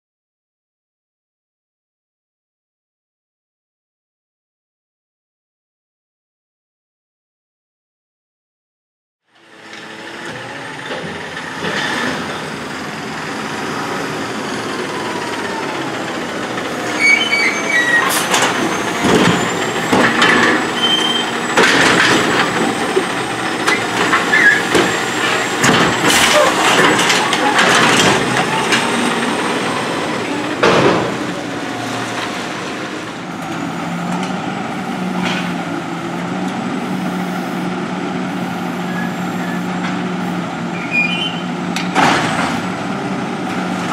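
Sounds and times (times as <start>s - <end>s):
diesel engine running: 9.3s - 43.9s
hydraulics whining: 9.4s - 43.9s
loud clanks and bangs: 10.8s - 33.2s, 41.7s - 42.8s.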